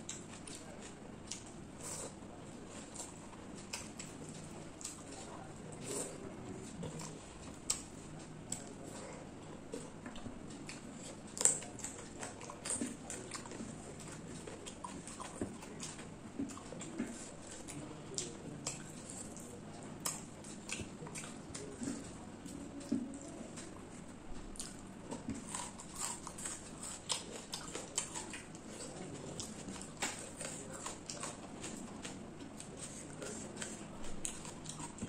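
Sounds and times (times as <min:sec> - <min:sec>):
mouth smacking and chewing: 0:09.7 - 0:23.8, 0:24.6 - 0:35.0.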